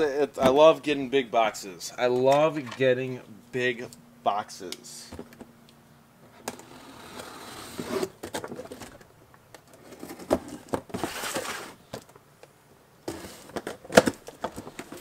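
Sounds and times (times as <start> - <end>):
rustling scrape: 6.6 - 9.0, 9.8 - 11.9, 13.1 - 13.6.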